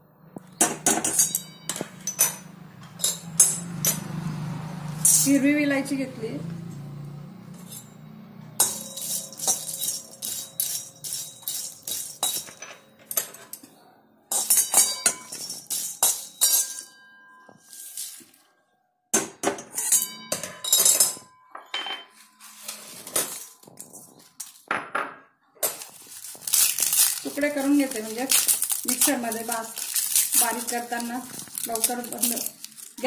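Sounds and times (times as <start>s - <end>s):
cardamom pods rattling on metal: 5.0s - 5.5s, 8.6s - 13.3s, 25.6s - 33.0s
spatula scraping iron pan: 8.6s - 12.6s.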